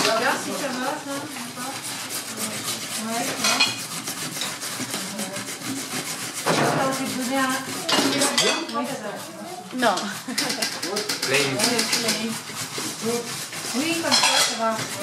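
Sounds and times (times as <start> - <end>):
metal spoon clinking on bowls: 3.3 - 3.8, 7.8 - 8.9, 13.9 - 14.9.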